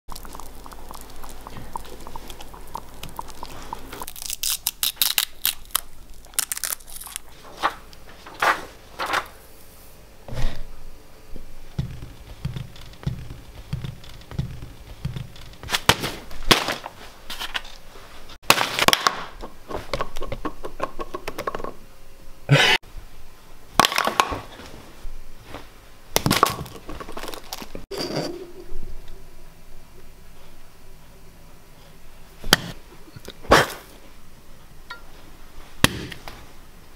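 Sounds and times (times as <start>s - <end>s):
sticker crackling as peeled: 0.2s - 9.2s.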